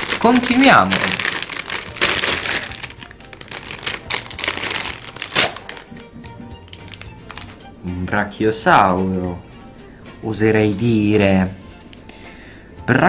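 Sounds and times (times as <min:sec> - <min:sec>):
foil bag crinkling: 0:00.0 - 0:06.0, 0:06.6 - 0:07.6.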